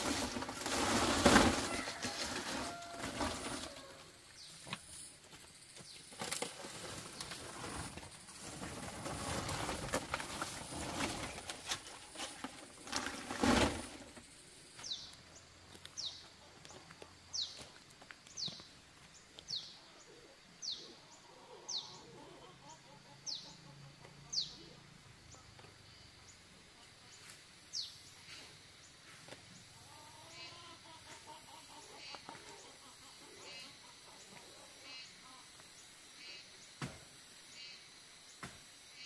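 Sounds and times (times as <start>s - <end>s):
rustling and brushing: 0.0s - 15.1s.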